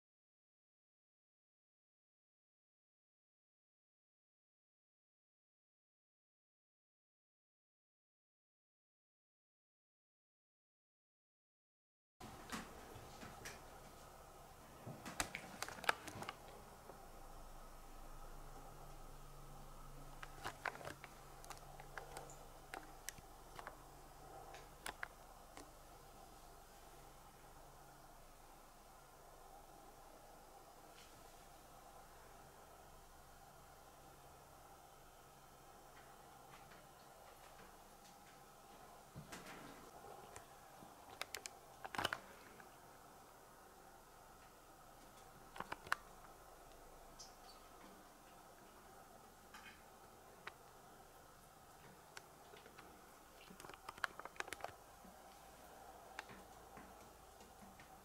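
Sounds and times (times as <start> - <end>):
low steady hum: 12.2 - 58.0.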